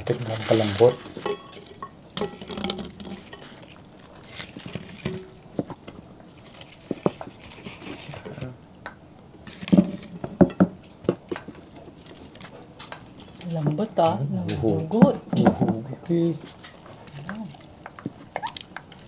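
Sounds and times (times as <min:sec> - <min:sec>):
dishes clattering: 0:00.5 - 0:03.8, 0:04.5 - 0:06.0, 0:09.6 - 0:11.7
spoons clinking on glass bowls: 0:01.2 - 0:03.6.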